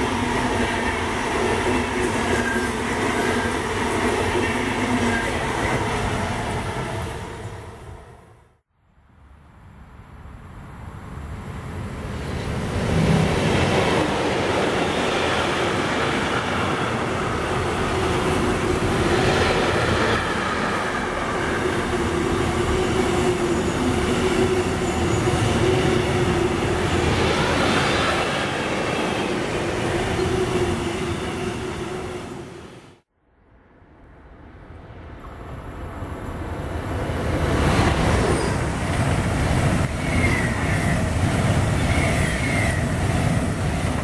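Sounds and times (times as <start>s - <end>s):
freight train rumbling and rattling: 11.6s - 32.5s, 35.2s - 44.0s.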